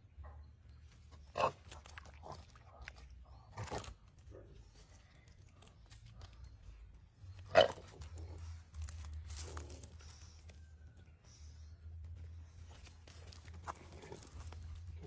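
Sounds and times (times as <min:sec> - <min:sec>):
wet crunching and squelching: 0:01.5 - 0:04.1.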